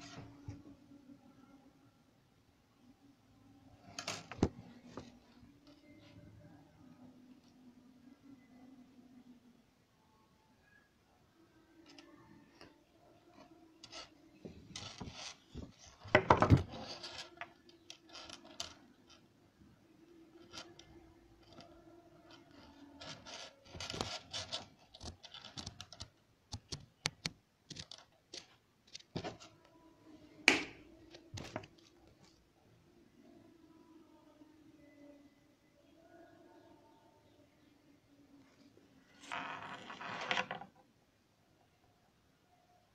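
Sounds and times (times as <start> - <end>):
wires and components clicking: 3.9 - 5.9, 20.3 - 29.7.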